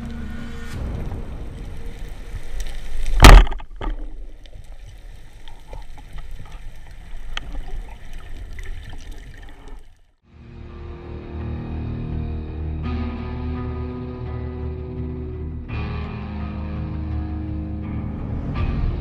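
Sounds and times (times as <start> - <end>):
low water hiss: 0.0 - 10.0
underwater clicking and crackling: 1.0 - 10.2.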